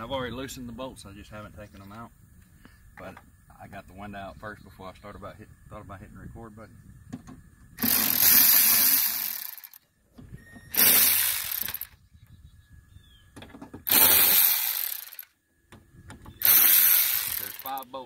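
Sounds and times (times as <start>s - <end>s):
electric ratchet spinning bolts: 7.8s - 9.8s, 10.7s - 12.0s, 13.8s - 15.3s, 16.4s - 17.8s.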